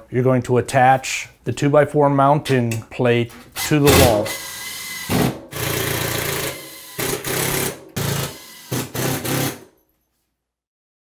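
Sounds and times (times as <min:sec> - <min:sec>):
cordless drill driving screws: 0:03.6 - 0:09.6.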